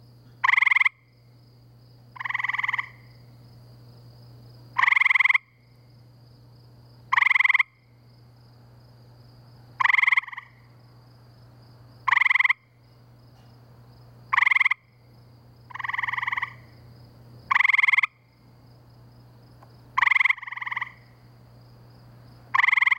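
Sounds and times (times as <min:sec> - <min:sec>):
quieter frog answering: 0:00.4 - 0:01.1, 0:02.2 - 0:03.1, 0:04.8 - 0:05.6, 0:07.1 - 0:07.8, 0:09.8 - 0:10.6, 0:12.1 - 0:12.7, 0:14.3 - 0:14.9, 0:15.7 - 0:16.7, 0:17.5 - 0:18.3, 0:20.0 - 0:21.2, 0:22.5 - 0:22.9
treefrogs trilling: 0:00.4 - 0:01.2, 0:02.2 - 0:03.2, 0:04.8 - 0:05.7, 0:07.1 - 0:07.9, 0:09.8 - 0:10.7, 0:12.0 - 0:12.8, 0:14.3 - 0:15.0, 0:15.6 - 0:16.8, 0:17.4 - 0:18.4, 0:20.0 - 0:21.3, 0:22.5 - 0:22.9.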